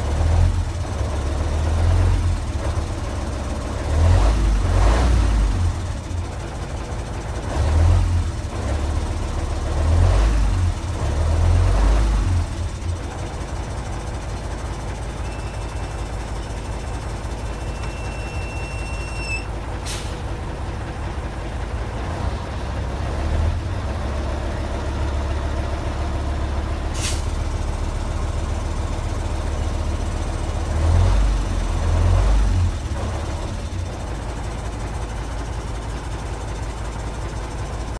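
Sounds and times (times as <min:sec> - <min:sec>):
diesel engine idling and revving: 0:00.0 - 0:37.9
faint whistle: 0:15.2 - 0:16.2, 0:17.4 - 0:19.5.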